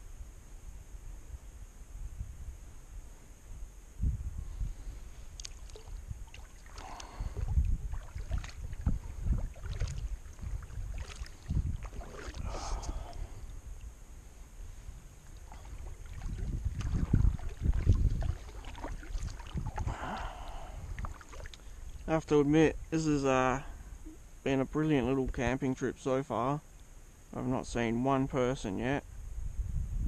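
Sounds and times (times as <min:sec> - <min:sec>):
paddle splashing in water: 0:05.4 - 0:13.4, 0:15.2 - 0:22.1.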